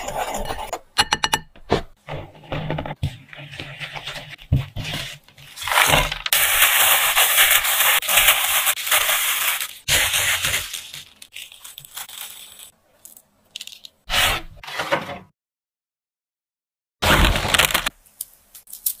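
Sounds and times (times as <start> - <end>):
gloved hand mixing crunchy dough: 3.1 - 12.8.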